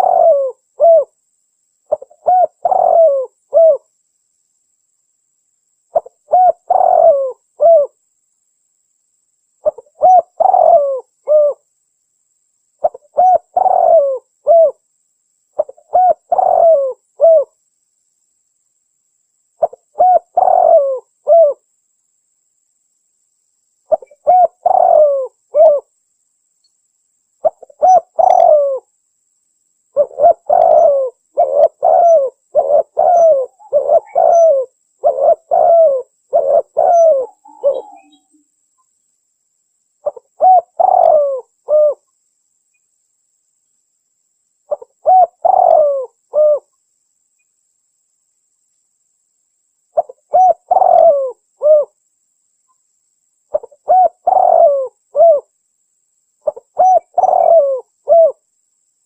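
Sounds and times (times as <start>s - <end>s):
dove cooing: 0.0s - 1.2s, 1.9s - 3.9s, 5.9s - 8.0s, 9.6s - 11.6s, 12.8s - 14.8s, 15.6s - 17.6s, 19.6s - 21.6s, 23.9s - 25.9s, 27.4s - 28.9s, 30.0s - 38.4s, 40.0s - 42.0s, 44.7s - 46.7s, 50.0s - 52.0s, 53.5s - 55.5s, 56.4s - 58.4s.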